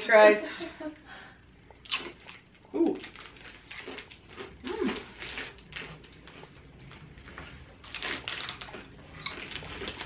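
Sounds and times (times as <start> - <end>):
crisp packet crinkling: 2.9 - 10.0.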